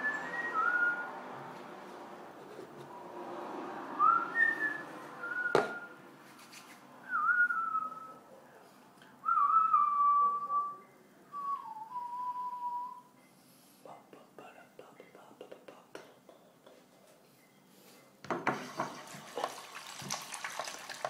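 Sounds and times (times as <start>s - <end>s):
person whistling a slow tune: 0.0s - 1.1s, 4.0s - 5.9s, 7.1s - 8.2s, 9.2s - 13.1s.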